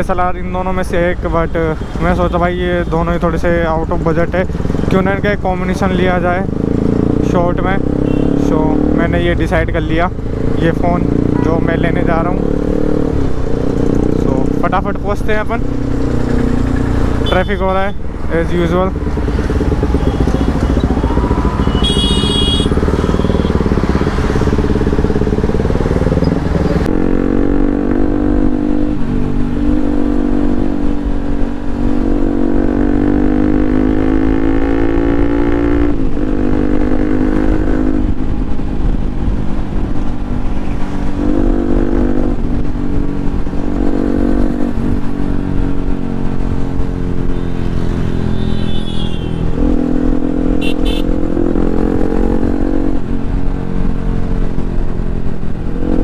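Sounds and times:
motorcycle engine accelerating: 3.4s - 17.3s, 18.2s - 56.0s
short horn beep: 21.6s - 23.5s, 48.4s - 49.4s, 50.6s - 51.1s.

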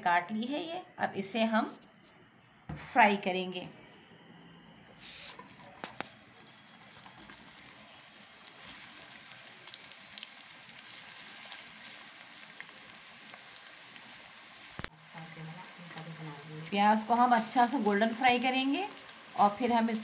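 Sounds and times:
onions sizzling in hot fat: 5.0s - 20.0s.

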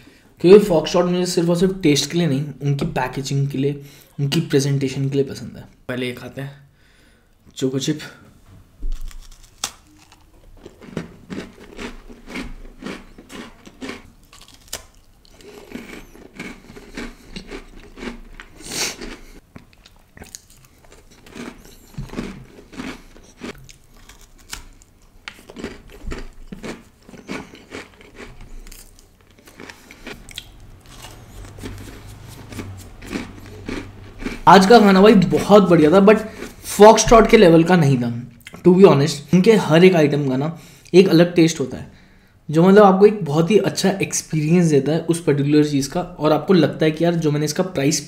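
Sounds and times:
cookie crunching and chewing: 8.9s - 37.1s.

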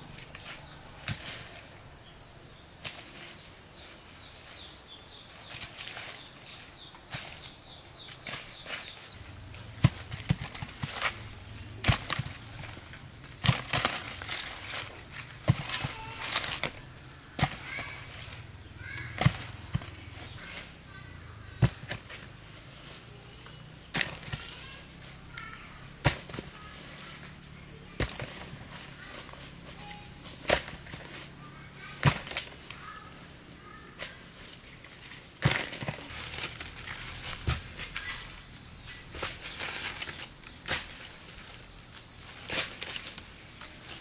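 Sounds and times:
insect chirping: 0.0s - 44.0s
faint bird chirps: 28.8s - 30.2s, 32.6s - 34.6s, 36.8s - 40.2s.

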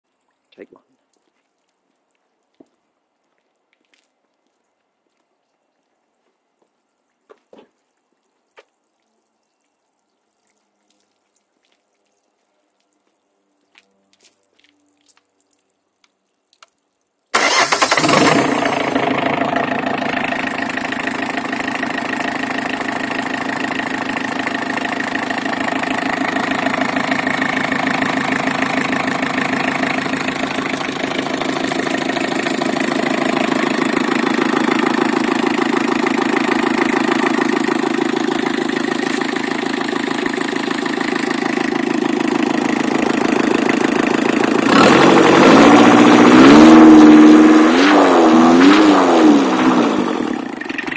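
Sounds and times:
diesel engine idling and revving: 17.4s - 50.9s.

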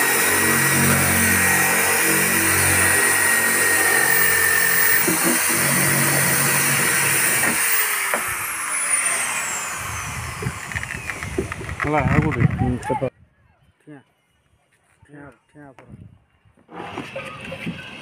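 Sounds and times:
electric drill with hole saw cutting plastic: 0.0s - 12.4s.

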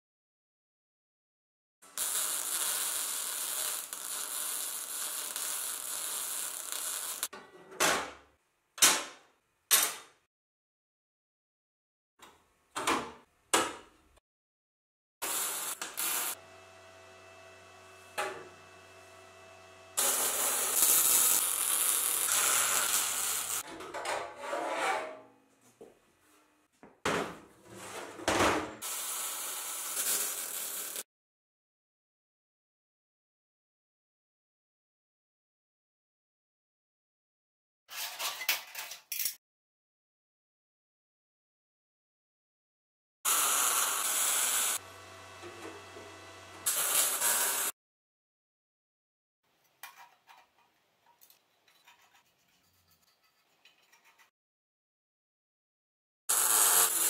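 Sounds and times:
welding arc crackling: 1.9s - 7.3s, 15.2s - 16.5s, 19.0s - 23.6s, 28.9s - 31.0s, 43.3s - 44.9s, 46.6s - 47.7s
angle grinder grinding steel: 2.0s - 7.3s, 15.2s - 23.6s, 43.3s - 47.7s
sheet steel scraping and rubbing: 23.4s - 25.2s.

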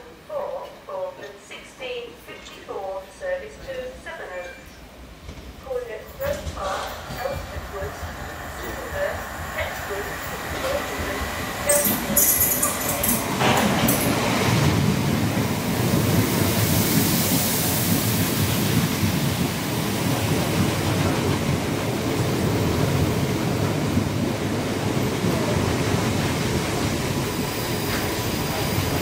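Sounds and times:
train passing at speed: 0.0s - 29.0s.

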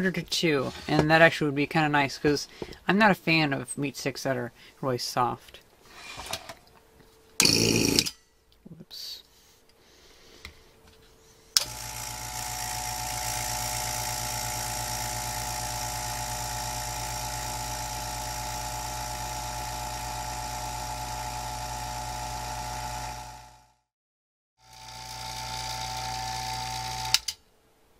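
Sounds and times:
vacuum pump humming and whining: 11.6s - 23.7s, 24.7s - 27.4s.

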